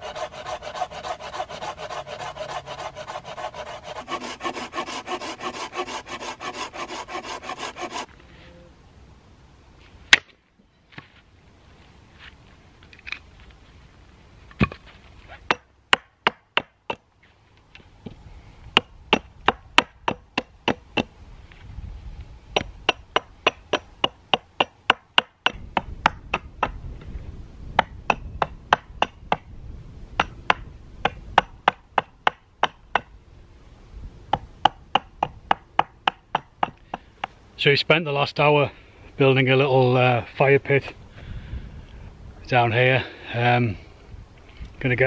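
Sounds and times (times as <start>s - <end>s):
axe chopping wood: 15.5s - 17.0s, 18.8s - 21.1s, 22.6s - 26.8s, 34.4s - 37.3s.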